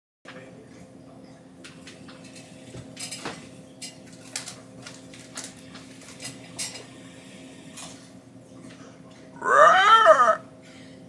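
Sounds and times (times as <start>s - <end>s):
faint steady hum: 0.3s - 11.0s.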